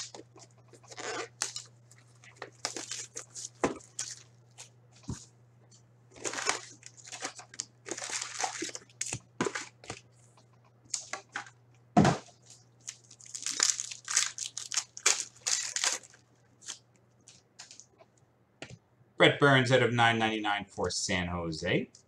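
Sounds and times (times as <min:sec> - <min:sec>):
foil pack tearing: 0:00.0 - 0:01.7, 0:02.3 - 0:04.3, 0:06.2 - 0:09.7, 0:12.8 - 0:16.8
foil wrapper crinkling: 0:00.0 - 0:04.7, 0:06.2 - 0:10.0, 0:12.4 - 0:17.9.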